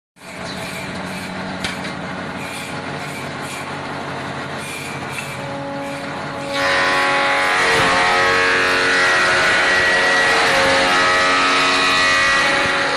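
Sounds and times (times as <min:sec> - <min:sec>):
woodworking machine motor running: 0:00.3 - 0:12.9
cutter cutting into wood: 0:07.6 - 0:12.9.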